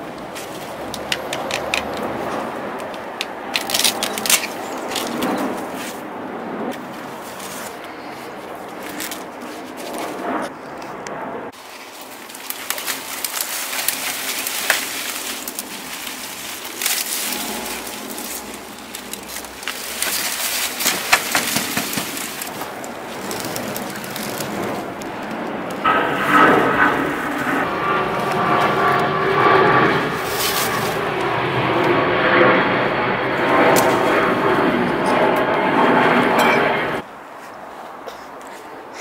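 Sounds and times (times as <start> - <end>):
leafy plants rustling: 0.2 - 6.1, 6.7 - 10.2, 11.6 - 31.6.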